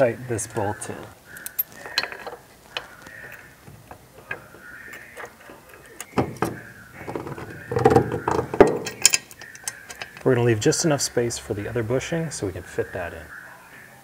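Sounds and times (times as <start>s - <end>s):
steel hardware knocking: 6.0s - 10.2s
metallic clicks of bolt threading: 8.2s - 10.3s.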